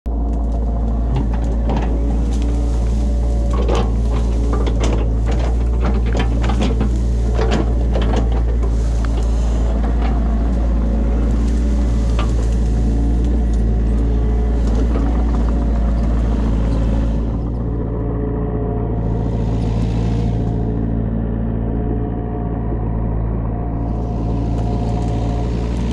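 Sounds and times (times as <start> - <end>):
excavator diesel engine running: 0.1 - 25.9
branches cracking: 0.2 - 17.4, 23.9 - 25.9.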